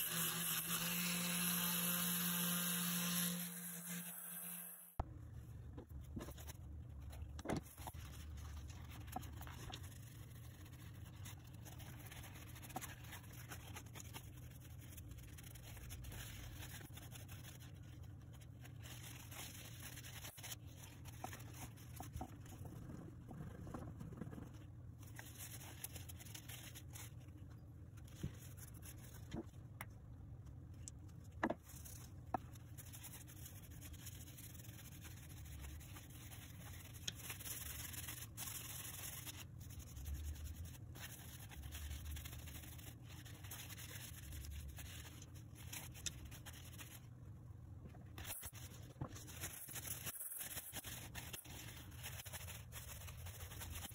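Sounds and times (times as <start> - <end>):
paper towel rubbing metal: 7.6 - 27.2, 48.1 - 53.9.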